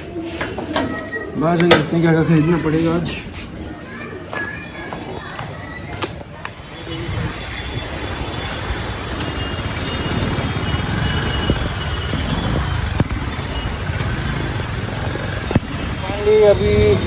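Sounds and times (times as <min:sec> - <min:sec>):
motorbike engine and road rumble: 0:06.2 - 0:17.0.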